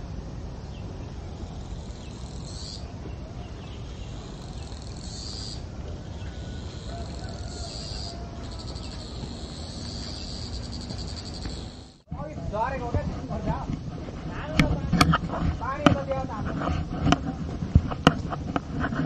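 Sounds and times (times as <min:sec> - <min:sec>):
insects buzzing: 0:00.0 - 0:19.0
small high chirps: 0:03.8 - 0:12.1.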